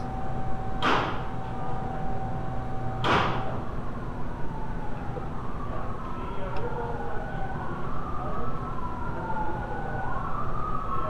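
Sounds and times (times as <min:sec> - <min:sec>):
steady hum: 0:00.0 - 0:06.0
faint siren wailing: 0:00.0 - 0:11.0.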